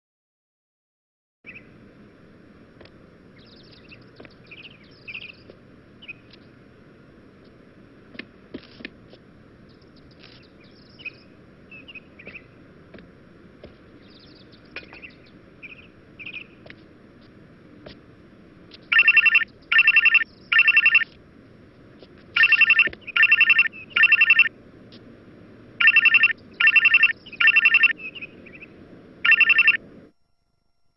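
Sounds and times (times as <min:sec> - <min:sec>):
faint chirps: 0:03.4 - 0:06.5, 0:09.6 - 0:12.6, 0:22.4 - 0:24.5, 0:25.8 - 0:30.2
trilling phone ringtone: 0:18.9 - 0:21.1, 0:22.4 - 0:24.5, 0:25.8 - 0:28.0, 0:29.2 - 0:29.8.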